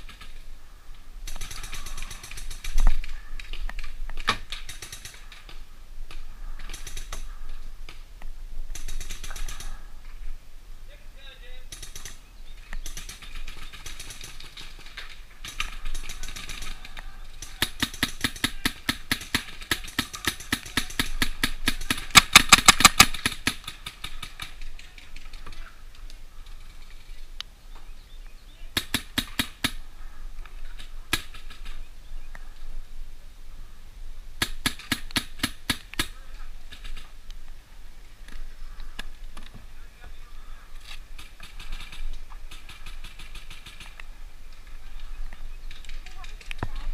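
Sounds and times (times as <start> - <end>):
paintball markers firing: 15.4 - 24.6.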